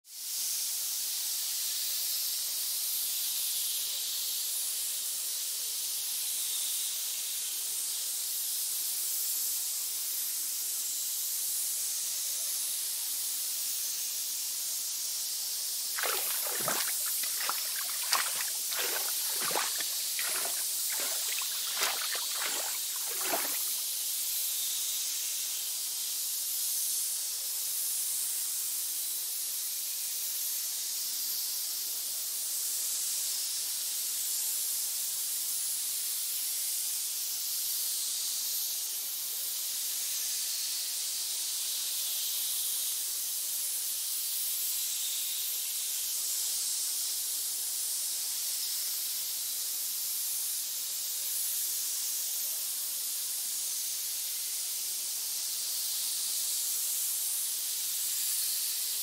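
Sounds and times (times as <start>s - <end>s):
snake hiss: 14.9s - 24.8s, 40.1s - 59.0s.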